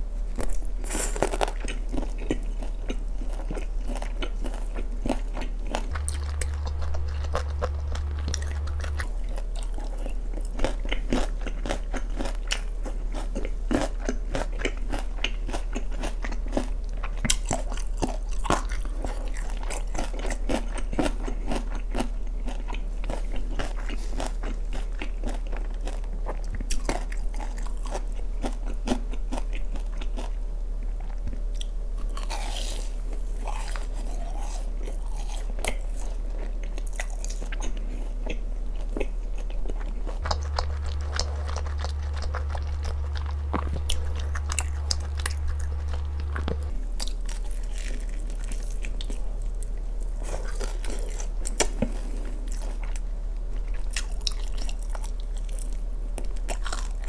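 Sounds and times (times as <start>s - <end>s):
crunchy chewing of fried chicken: 0.0s - 57.0s.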